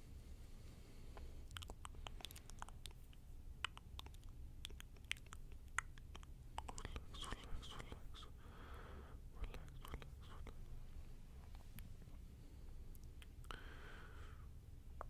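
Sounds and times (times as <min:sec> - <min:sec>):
faint breathy sound: 0:00.0 - 0:02.5, 0:06.9 - 0:11.6, 0:12.2 - 0:14.6
soft clicks and crackles: 0:11.4 - 0:12.2.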